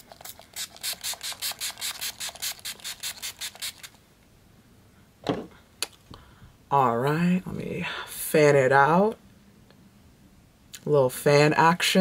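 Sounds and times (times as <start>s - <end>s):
spray bottle hissing sprays: 0.0s - 4.0s.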